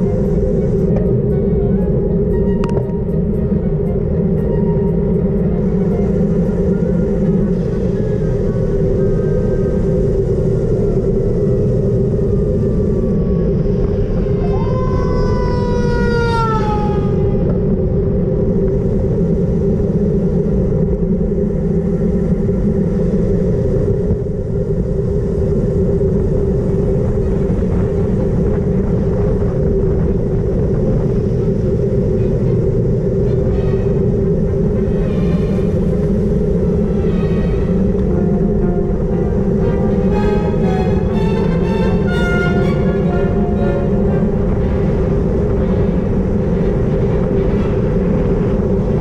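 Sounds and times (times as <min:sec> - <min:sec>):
whine sliding down in pitch: 0:00.0 - 0:18.0, 0:33.2 - 0:46.0
steady hum: 0:00.0 - 0:49.0
wind rushing over microphone: 0:00.0 - 0:49.0.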